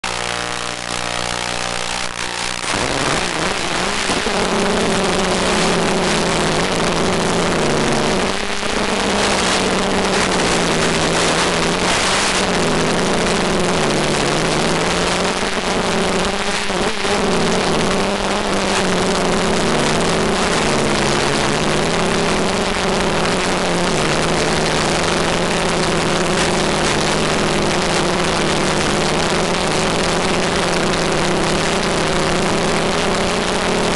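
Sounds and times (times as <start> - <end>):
drone motors humming: 0.0 - 33.9
steady hiss: 0.2 - 33.9.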